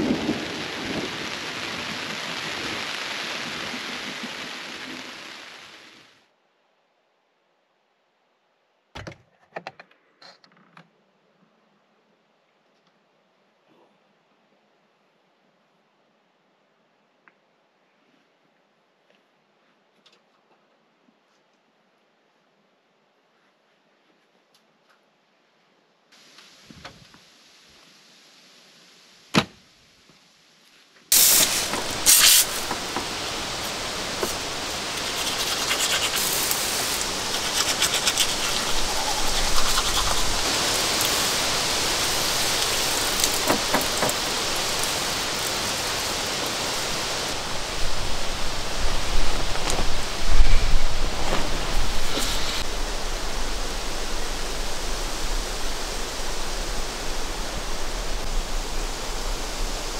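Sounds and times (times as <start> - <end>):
wind through leaves: 0.0 - 8.9, 21.7 - 59.9.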